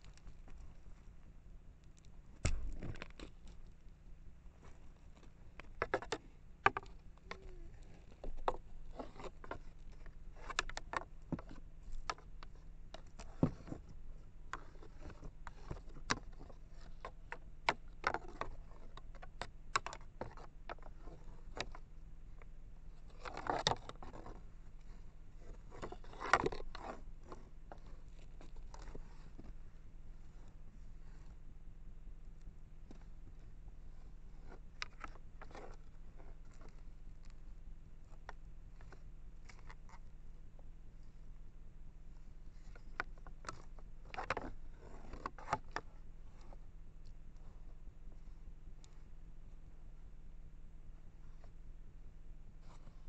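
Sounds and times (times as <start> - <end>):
clicks and scrapes on microphone: 1.8 - 3.8, 4.6 - 21.8, 22.4 - 31.4, 32.8 - 41.2, 42.2 - 49.0, 52.6 - 53.0
rustling scrapes: 42.4 - 46.6.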